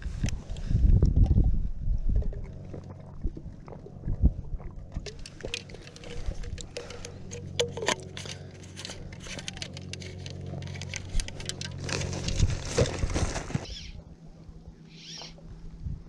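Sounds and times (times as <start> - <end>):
low steady hum: 0.0 - 16.0
plastic bottle crackling: 5.1 - 13.7.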